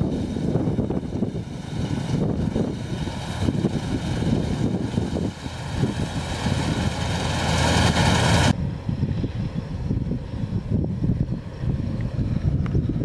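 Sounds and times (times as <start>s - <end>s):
combine harvester droning: 0.0s - 10.4s
wind-like noise: 0.0s - 13.0s.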